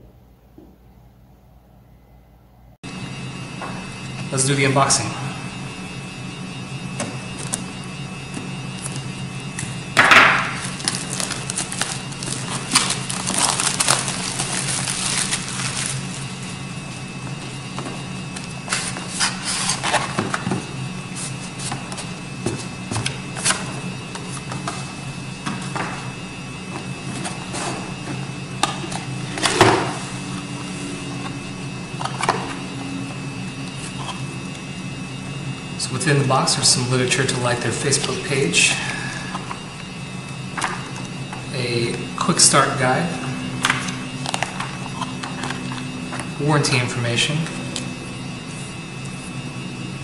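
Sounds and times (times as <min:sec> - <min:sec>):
steady low hum: 0:00.0 - 0:50.0
plastic wrap ripping: 0:10.6 - 0:16.4
plastic film crinkling: 0:10.6 - 0:16.6.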